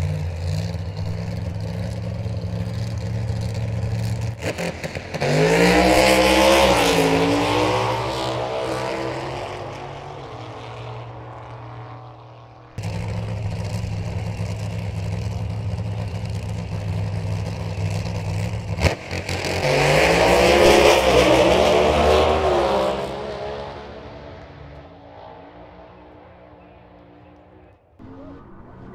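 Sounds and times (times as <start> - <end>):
low engine rumble: 0.0 - 5.2, 9.2 - 19.1
engine revving hard: 0.0 - 11.2, 12.8 - 24.4
drag racing car accelerating: 0.0 - 28.9.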